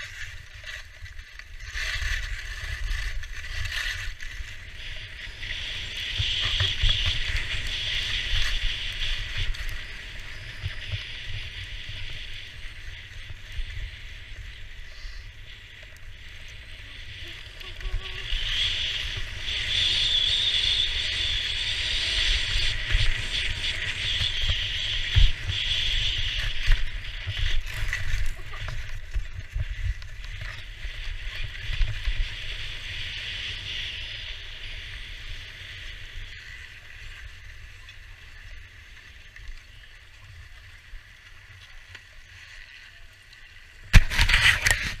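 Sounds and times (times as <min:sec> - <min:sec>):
skis sliding over snow: 0:00.0 - 0:45.0
wind rumble on microphone: 0:00.0 - 0:45.0
camera knock and clatter: 0:43.9 - 0:45.0.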